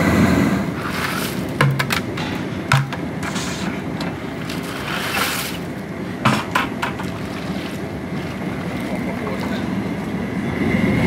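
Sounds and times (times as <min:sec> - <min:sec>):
gas burner rushing: 0:00.0 - 0:08.5
water boiling: 0:00.6 - 0:10.6
paddle knocking on metal pot: 0:01.6 - 0:03.2, 0:06.2 - 0:07.2.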